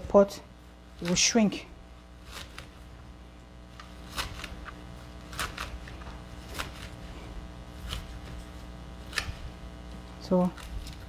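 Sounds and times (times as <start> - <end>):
steady low hum: 0.0 - 11.0
knife cutting leaves: 2.2 - 2.9, 3.7 - 11.0.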